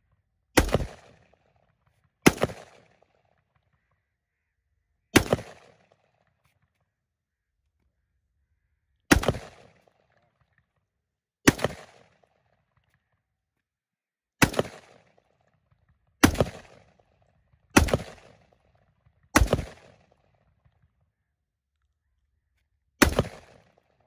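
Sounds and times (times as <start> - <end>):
rifle gunshots: 0.6 - 1.3, 2.2 - 3.0, 5.2 - 5.9, 9.1 - 9.8, 11.5 - 12.2, 14.4 - 15.2, 16.2 - 17.0, 17.8 - 18.6, 19.4 - 20.2, 23.0 - 23.8.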